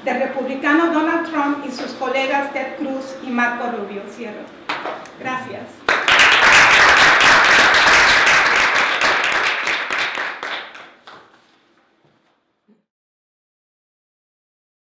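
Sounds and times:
audience applauding: 5.9s - 11.4s.

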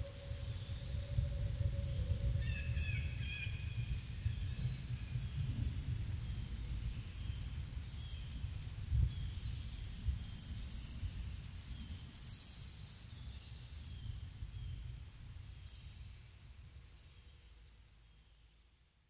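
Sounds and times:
low rumble: 0.0s - 7.5s.

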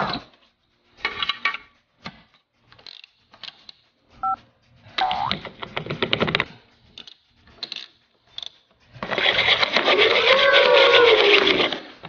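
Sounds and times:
toy stove fast rattle: 5.3s - 12.0s.

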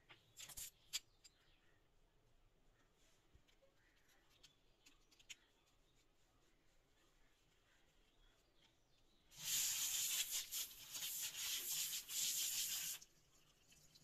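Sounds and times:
tap spray running into sink: 9.4s - 13.1s.

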